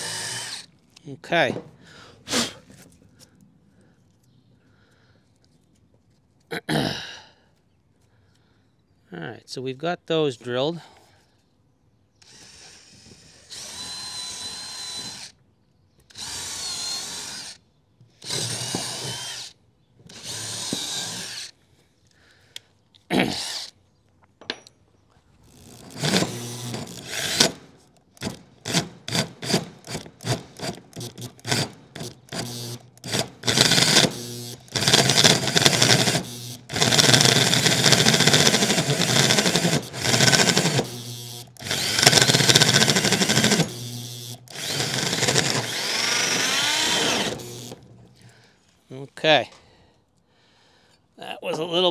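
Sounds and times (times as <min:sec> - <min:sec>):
power drill with hole saw cutting wood: 0:00.0 - 0:00.7, 0:12.2 - 0:15.4, 0:16.1 - 0:17.6, 0:18.2 - 0:21.5, 0:23.4 - 0:23.7, 0:25.5 - 0:48.0.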